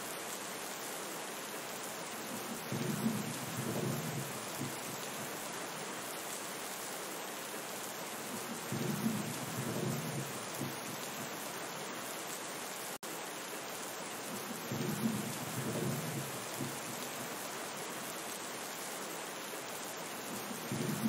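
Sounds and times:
steady rain hiss: 0.0 - 21.0
thunder rumbling: 2.6 - 5.0, 8.7 - 11.3, 14.6 - 17.0, 20.3 - 21.0.

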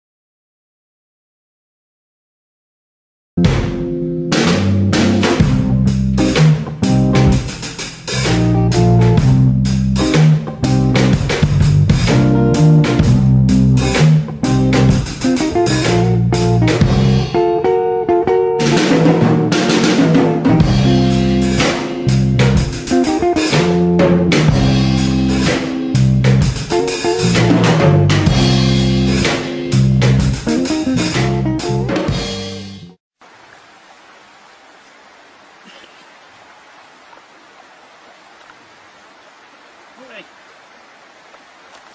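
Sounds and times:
music with guitar and drums: 3.4 - 33.0
faint steady hiss: 33.2 - 41.9.

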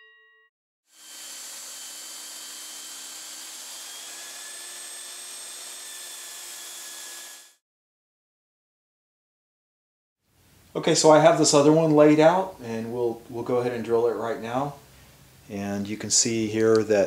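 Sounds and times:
belt sander running: 0.9 - 7.6.

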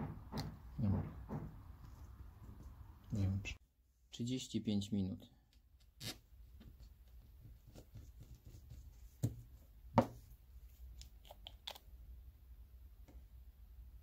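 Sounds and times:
sharp knocks: 0.0 - 1.8.

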